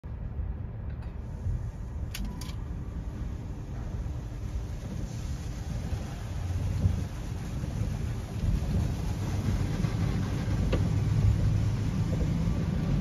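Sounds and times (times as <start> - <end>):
car wash machinery rumbling: 0.0 - 13.0
water spray hitting windshield: 3.8 - 13.0.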